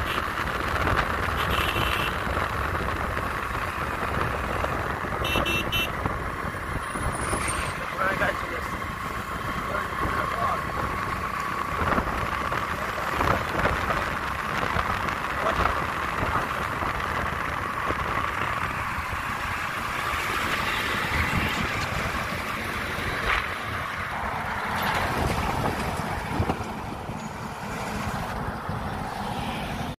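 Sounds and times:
heavy trucks on highway: 0:00.0 - 0:30.0.

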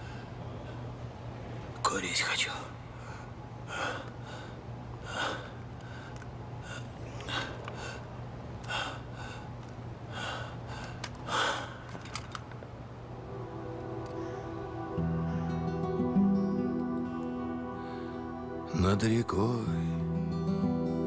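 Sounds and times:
steady low hum: 0:00.0 - 0:21.0
person gasping breaths: 0:03.0 - 0:12.0.

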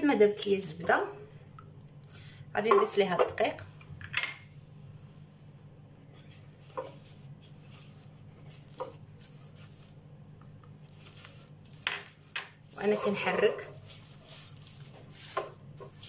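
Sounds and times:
steady low hum: 0:03.4 - 0:16.0.

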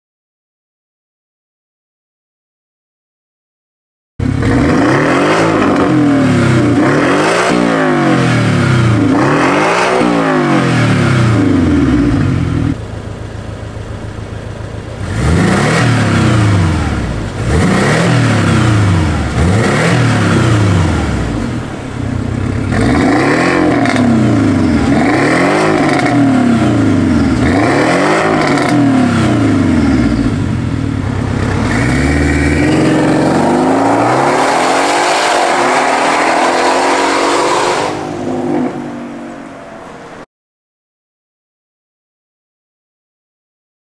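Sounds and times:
car accelerating away: 0:04.2 - 0:12.8, 0:14.7 - 0:40.2
car exhaust revving in blips: 0:04.2 - 0:12.8, 0:13.9 - 0:38.9
car engine idling: 0:11.0 - 0:35.0.

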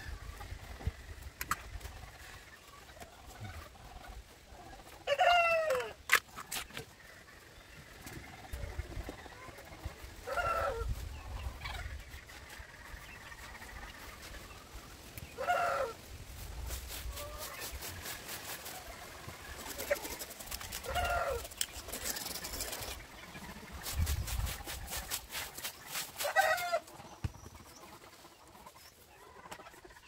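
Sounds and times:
chicken calling: 0:04.6 - 0:06.0, 0:08.5 - 0:11.9, 0:15.3 - 0:16.0, 0:18.9 - 0:27.0
broom sweeping dirt: 0:10.0 - 0:23.0, 0:23.6 - 0:27.2.

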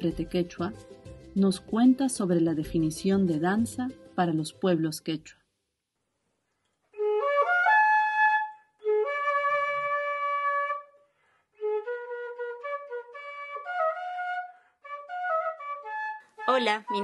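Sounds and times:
solo flute melody: 0:06.9 - 0:17.0.

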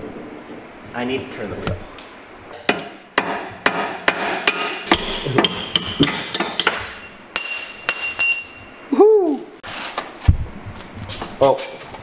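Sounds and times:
hammer striking steel punch: 0:02.7 - 0:08.7.

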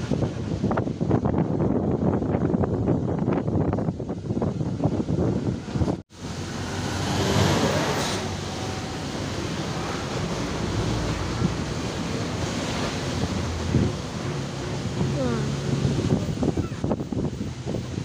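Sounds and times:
wind on microphone: 0:00.0 - 0:18.0
vehicle road noise: 0:03.7 - 0:18.0.

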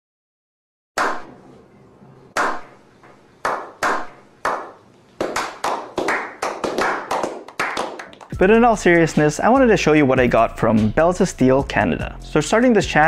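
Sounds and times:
group clapping: 0:03.4 - 0:08.4.

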